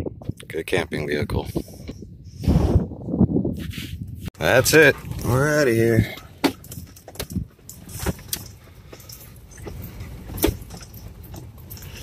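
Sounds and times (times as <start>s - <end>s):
vehicle cabin rumble: 4.7s - 12.0s
knocks and rattles: 5.0s - 12.0s.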